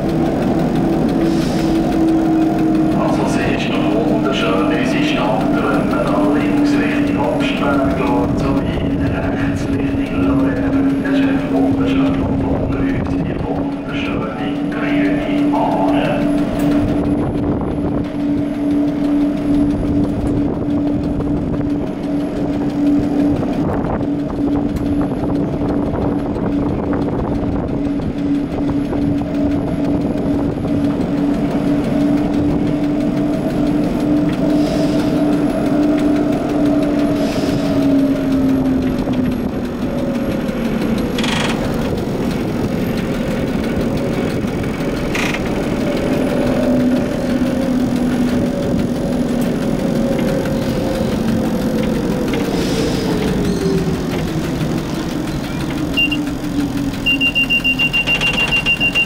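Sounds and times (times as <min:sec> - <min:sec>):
streetcar drive hum: 0:00.0 - 0:59.0
wheel and track rumble: 0:00.0 - 0:59.0
sharp clicks: 0:18.0 - 0:59.0.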